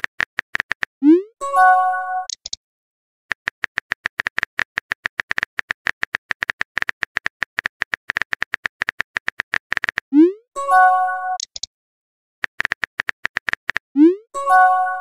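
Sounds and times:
keyboard typing clicks: 0:00.0 - 0:00.9, 0:02.2 - 0:02.6, 0:03.3 - 0:10.2, 0:11.3 - 0:11.7, 0:12.4 - 0:13.8.

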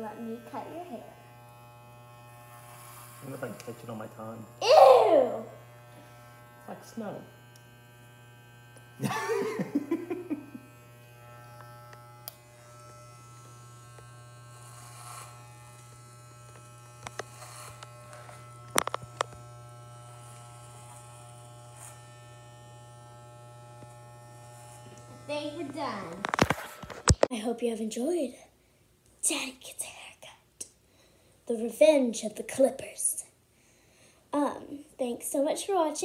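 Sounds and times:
electric hair clippers buzzing: 0:00.0 - 0:27.3.

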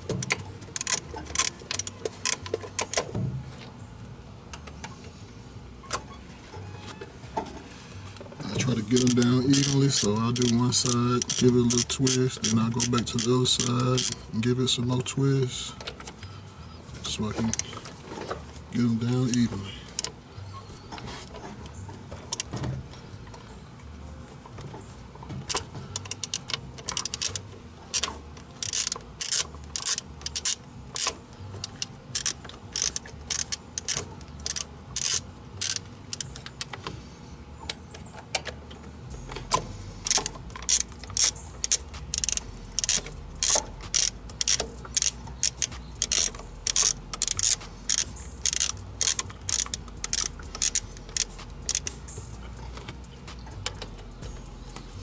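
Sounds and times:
socket ratchet clicking: 0:08.9 - 0:14.2, 0:25.5 - 0:36.8, 0:39.4 - 0:52.4.

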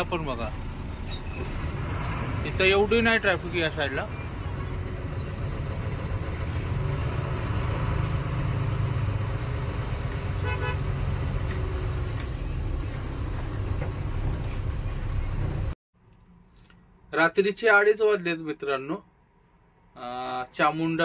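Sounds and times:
truck engine rumble: 0:00.0 - 0:16.7
vehicle horn toot: 0:10.4 - 0:10.9.

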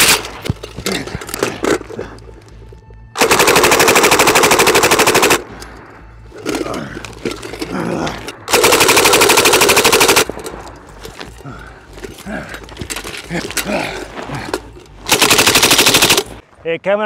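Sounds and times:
suppressed machine gun bursts: 0:08.5 - 0:10.7, 0:15.0 - 0:16.4.

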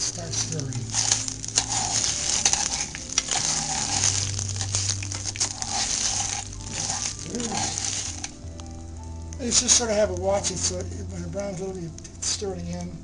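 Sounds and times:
rice sizzling in hot oil: 0:00.0 - 0:13.0
spoon stirring in pot: 0:00.3 - 0:08.4.

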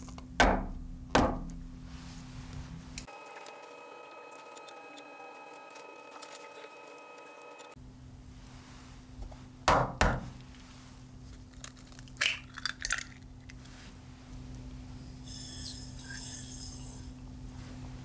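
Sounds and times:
eggshell crackling: 0:11.3 - 0:13.6.

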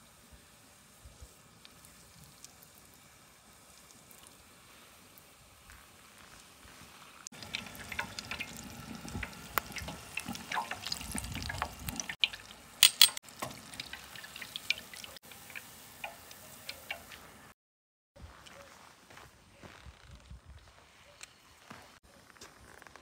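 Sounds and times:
oil sizzling with crackling pops: 0:00.0 - 0:17.5.

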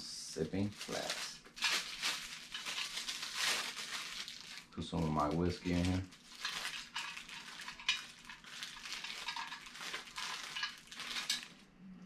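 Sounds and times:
packaging rustling: 0:00.4 - 0:11.6.

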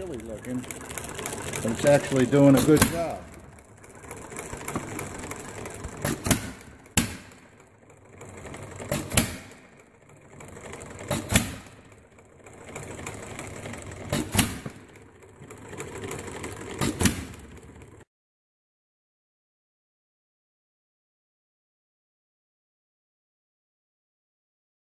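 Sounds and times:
engine clattering mechanically: 0:00.0 - 0:18.1.

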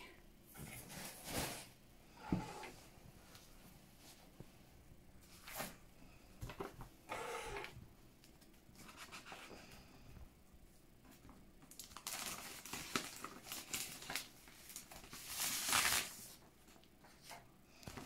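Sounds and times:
paper rustling and crinkling: 0:11.1 - 0:18.0.

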